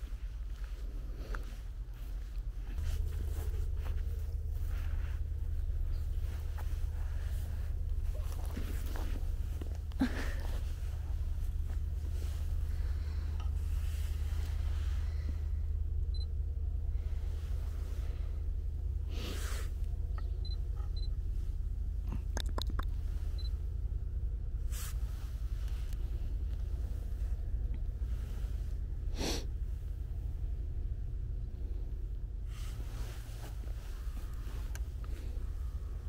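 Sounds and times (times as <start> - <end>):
handling rustles: 0.0 - 14.8
steady low rumble: 0.0 - 36.0.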